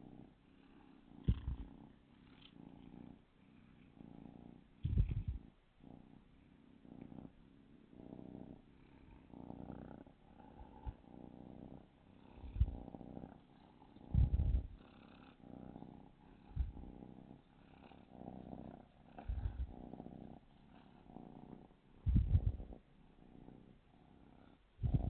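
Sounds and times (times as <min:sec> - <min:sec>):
kitten purring: 0:00.0 - 0:25.0
low thumps: 0:01.3 - 0:01.7, 0:04.8 - 0:05.4, 0:12.4 - 0:12.9, 0:14.1 - 0:14.8, 0:16.5 - 0:17.0, 0:19.2 - 0:19.8, 0:22.0 - 0:22.7.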